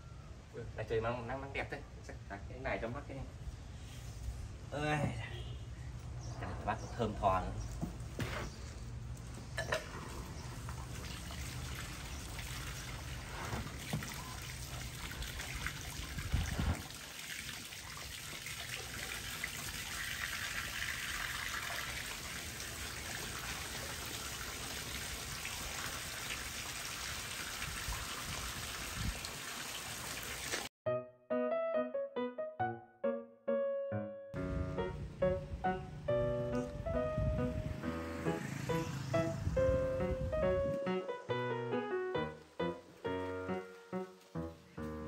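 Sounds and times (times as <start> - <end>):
water running: 9.6 - 30.7.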